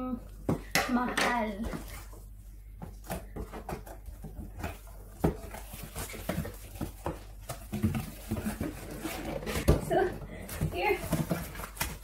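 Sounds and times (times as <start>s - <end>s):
cardboard box scraping and rustling: 7.7s - 12.0s.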